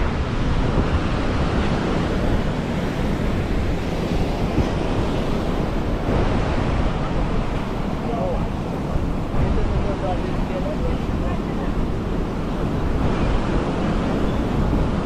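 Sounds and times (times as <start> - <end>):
surf breaking on beach: 0.0 - 15.0
wind buffeting microphone: 0.0 - 15.0.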